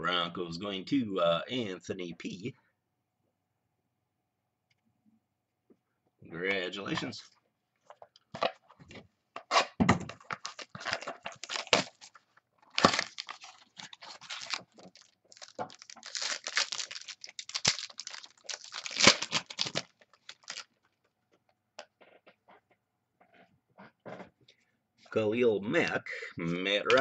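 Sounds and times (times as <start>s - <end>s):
foil wrappers tearing and crinkling: 10.2s - 20.9s.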